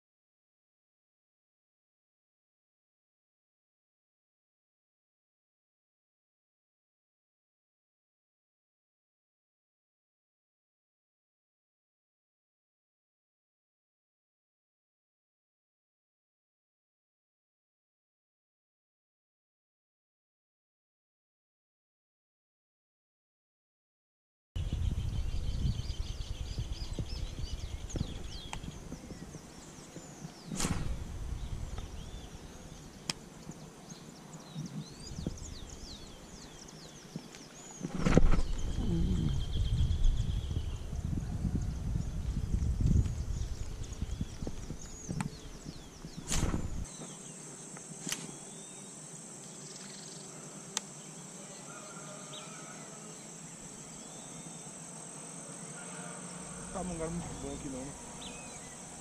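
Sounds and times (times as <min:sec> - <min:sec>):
low microphone rumble: 0:24.6 - 0:30.2, 0:30.8 - 0:33.0, 0:37.9 - 0:46.9
birds chirping and whistling: 0:24.6 - 0:47.4, 0:55.8 - 0:59.0
sharp click: 0:30.5 - 0:31.0, 0:48.0 - 0:48.3
loud rustling burst: 0:46.2 - 0:46.9
high-pitched insect drone: 0:46.9 - 0:59.0.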